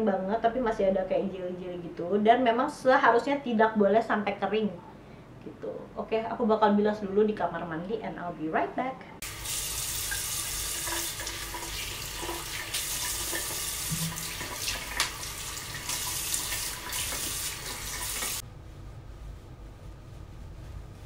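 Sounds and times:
sink tap running: 9.2s - 18.4s
water splashing on face: 9.2s - 18.4s.

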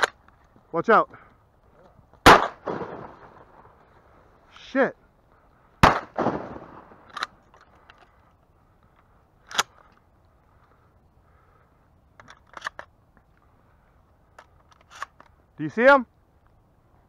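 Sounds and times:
shotgun blast with echo: 2.2s - 3.4s, 5.8s - 7.0s.

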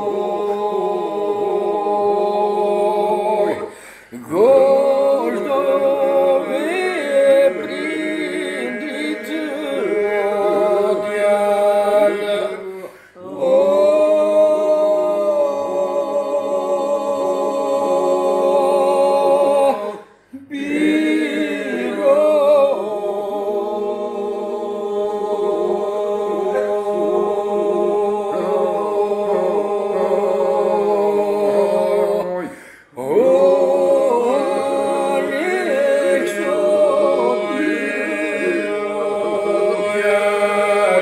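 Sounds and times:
held vocal drone: 0.0s - 41.0s
men singing a cappella: 0.0s - 41.0s.

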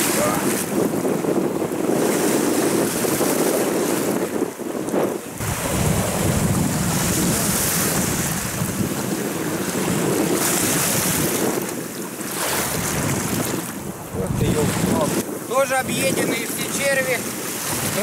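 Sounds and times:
storm wind buffeting microphone: 0.0s - 18.0s.

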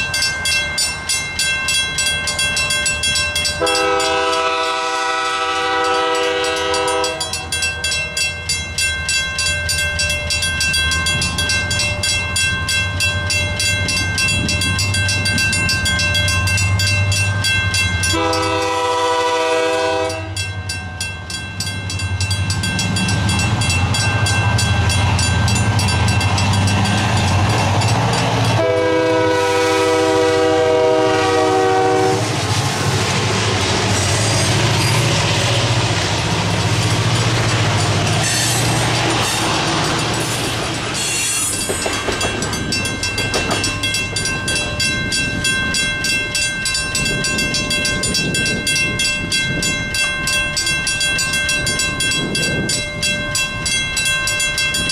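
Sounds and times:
crossing signal bells ringing: 0.0s - 32.4s, 33.0s - 54.9s
train rumbling and clattering: 0.0s - 54.9s
train air horn blasts: 3.6s - 7.4s, 18.1s - 20.5s, 28.5s - 32.5s.

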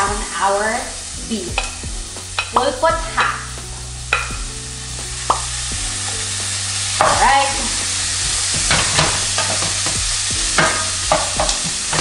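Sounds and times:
beef sizzling in a pan: 0.0s - 12.0s
wooden spoon scraping a pan: 1.3s - 12.0s.

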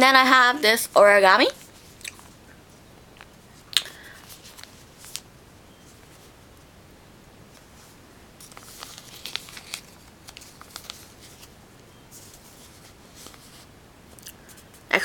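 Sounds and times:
paper crinkling: 4.1s - 5.3s, 7.5s - 13.7s.

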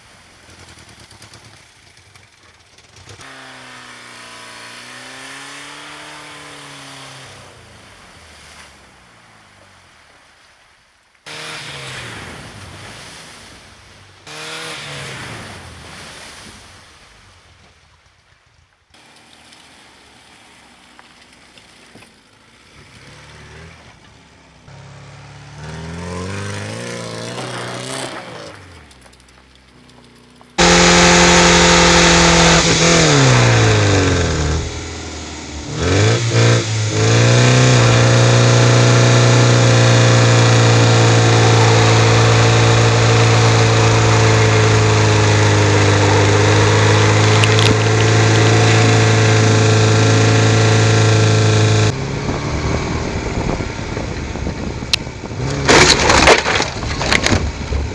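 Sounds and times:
small car engine revving: 3.0s - 8.0s, 11.3s - 12.6s, 14.2s - 15.6s, 22.6s - 29.0s, 30.6s - 57.5s.

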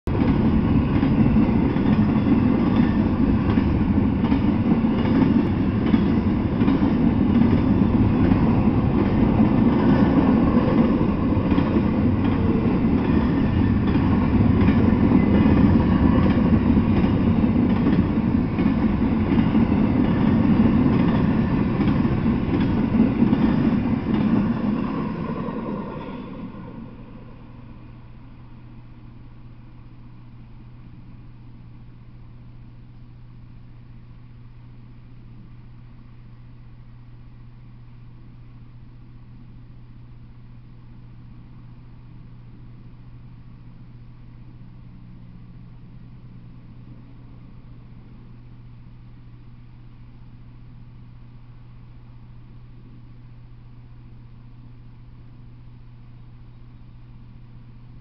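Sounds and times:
freight train rolling past: 0.1s - 29.2s.

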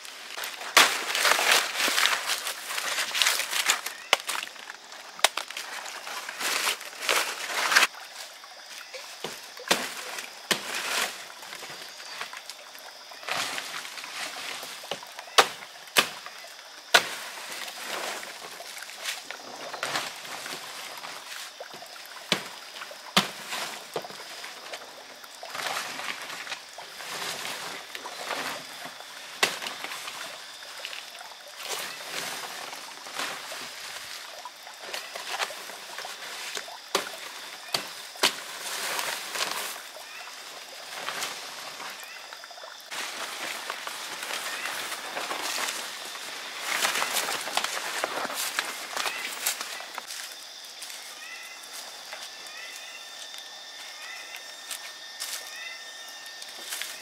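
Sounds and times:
leaves rustling and tearing: 0.0s - 8.0s, 42.9s - 53.4s.

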